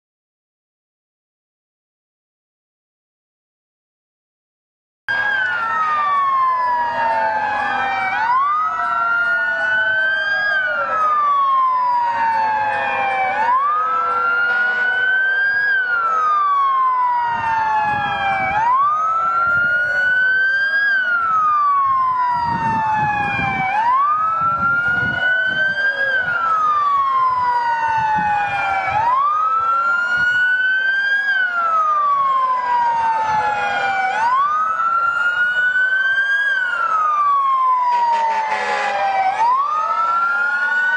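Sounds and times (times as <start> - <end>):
emergency sirens wailing: 5.1 - 40.9.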